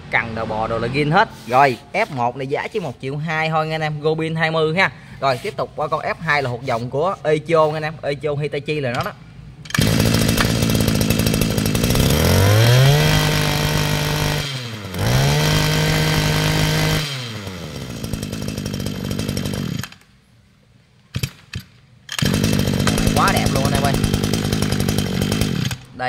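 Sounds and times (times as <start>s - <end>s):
starter cord pulled: 8.9s - 12.2s, 18.6s - 20.1s, 21.2s - 25.9s
brush cutter engine revving: 9.7s - 20.0s, 22.1s - 26.0s.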